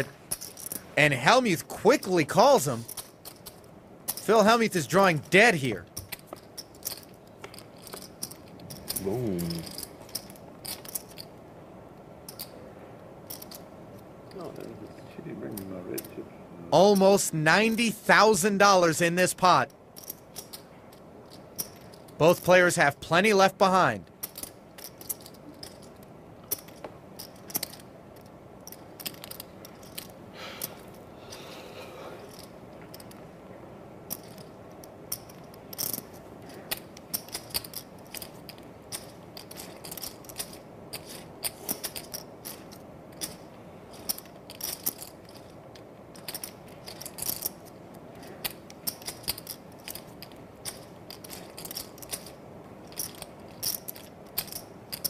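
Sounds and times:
faint room hum: 0:00.0 - 0:55.0
poker chips clicking: 0:02.0 - 0:11.3, 0:16.8 - 0:31.6, 0:35.1 - 0:55.0.

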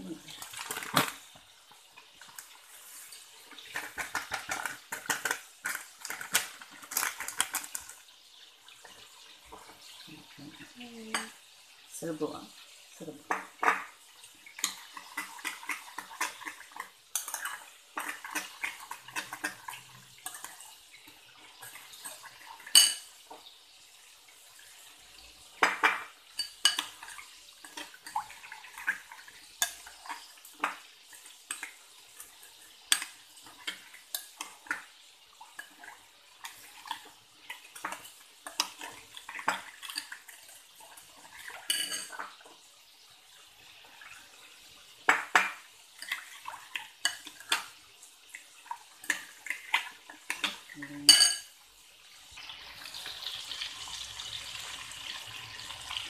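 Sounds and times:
metal spoon clinking on glass bowl: 0:22.7 - 0:23.1, 0:41.7 - 0:42.2, 0:50.4 - 0:51.5.

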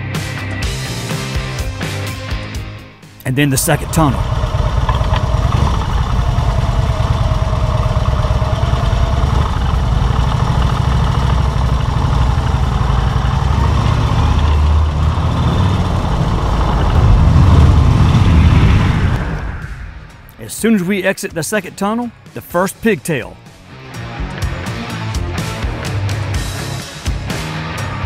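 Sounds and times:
motorcycle engine running: 0:03.4 - 0:20.4, 0:23.4 - 0:28.0.

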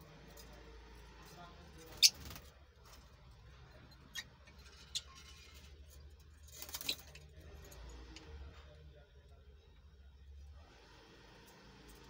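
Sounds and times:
birds chirping: 0:01.7 - 0:02.5, 0:03.4 - 0:06.0.

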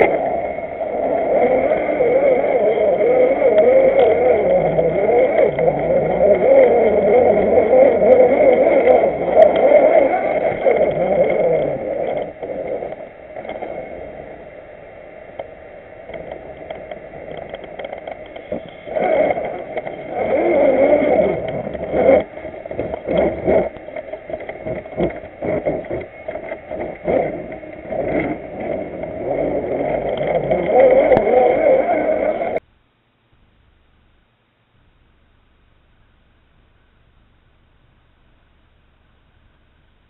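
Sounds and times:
electric motor whining: 0:00.0 - 0:14.5, 0:16.1 - 0:32.6
wheels knocking over stones: 0:16.2 - 0:32.6.

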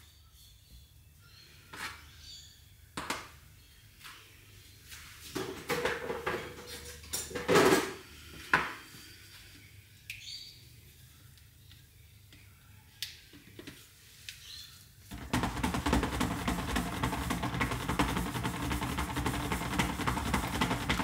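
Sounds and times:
kitchenware clattering on steel bench: 0:05.4 - 0:08.0.

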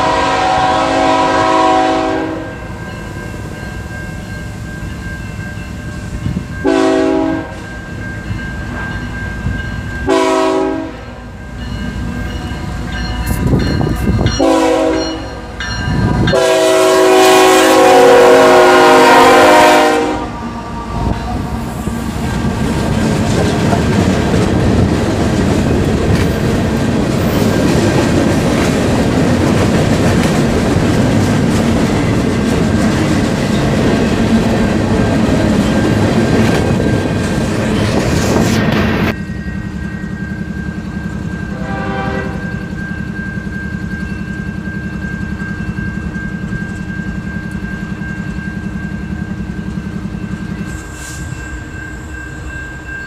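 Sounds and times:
train air horn blasts: 0:00.0 - 0:02.7, 0:06.6 - 0:07.6, 0:10.1 - 0:11.4, 0:14.4 - 0:15.5, 0:16.2 - 0:21.8, 0:41.5 - 0:42.7
train wheels rumbling over rail joints: 0:11.5 - 0:39.9.

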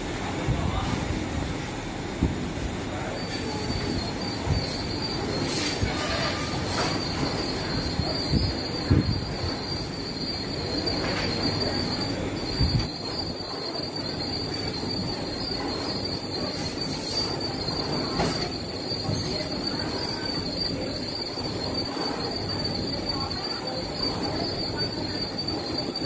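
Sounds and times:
high whine: 0:00.0 - 0:26.0
machine rumble: 0:00.0 - 0:26.0.

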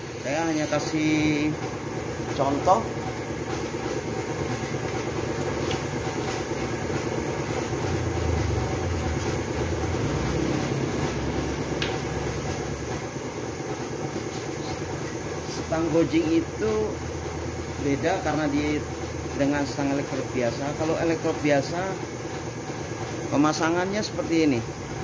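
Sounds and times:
compressed air hissing: 0:00.0 - 0:01.4.

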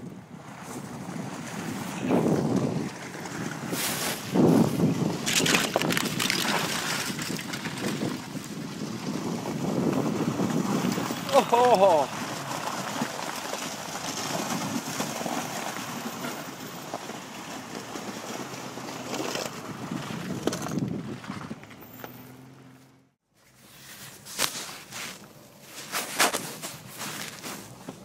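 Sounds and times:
wind on microphone: 0:00.0 - 0:11.4, 0:19.5 - 0:21.7
vehicle engine and tyre noise: 0:00.0 - 0:28.0
vehicle knocking over ruts: 0:12.1 - 0:22.7.

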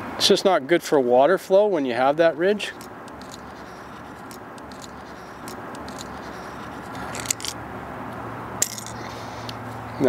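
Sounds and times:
deburring tool scraping copper pipe: 0:02.8 - 0:07.6.

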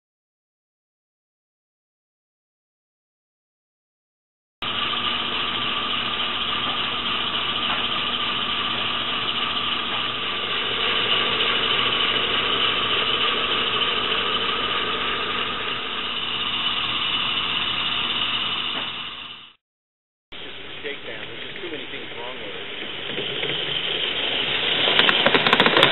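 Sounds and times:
model steam engine running on rollers: 0:04.6 - 0:19.6, 0:20.4 - 0:25.9.

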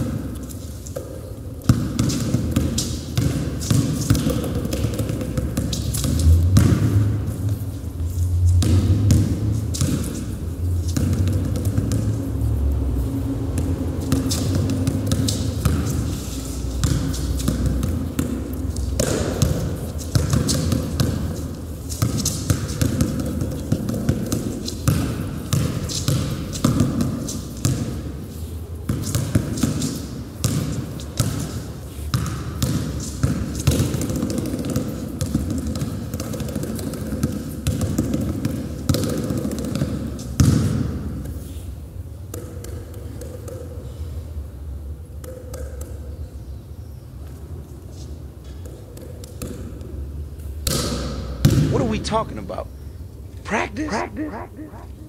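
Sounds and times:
basketball bouncing on wooden floor: 0:01.0 - 0:07.3, 0:08.5 - 0:10.3, 0:10.9 - 0:12.2, 0:16.8 - 0:21.4, 0:22.0 - 0:28.0, 0:28.9 - 0:31.5, 0:32.1 - 0:41.0.

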